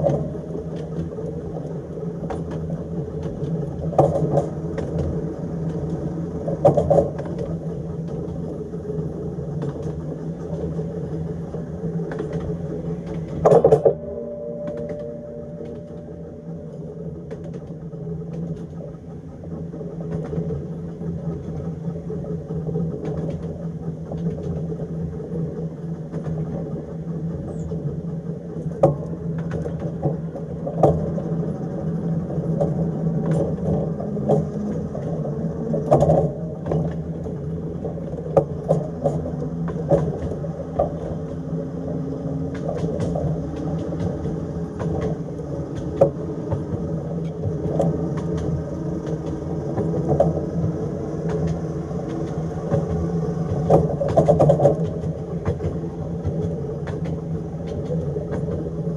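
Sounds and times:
electric tram motor hum: 0.0 - 58.9
wheels clicking on rails: 0.0 - 58.9.

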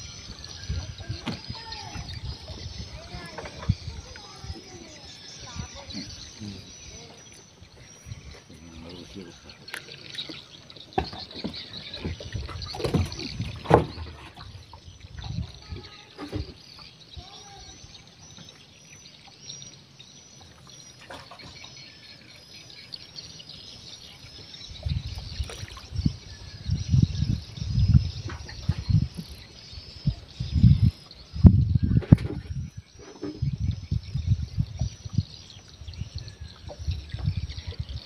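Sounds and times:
knocks and handling on boat: 0.3 - 6.1, 9.7 - 17.4.

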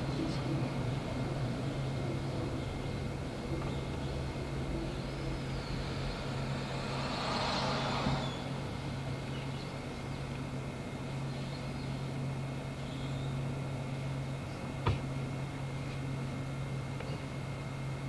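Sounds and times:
streetcar hum and rumble: 0.0 - 18.0
hiss: 5.9 - 8.6.

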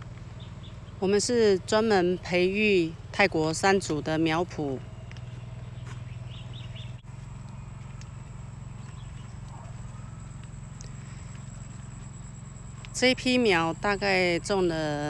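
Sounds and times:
low outdoor hum: 0.0 - 15.0
small bird chirping: 5.2 - 7.7, 8.6 - 14.5.

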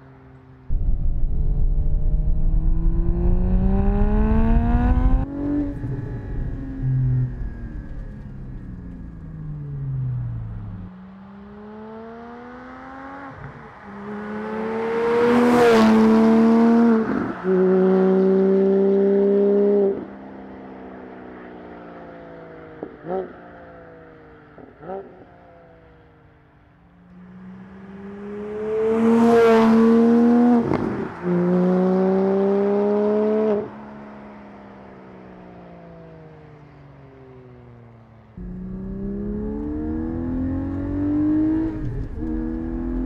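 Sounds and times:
car engine revving: 0.7 - 10.9, 38.4 - 43.0.

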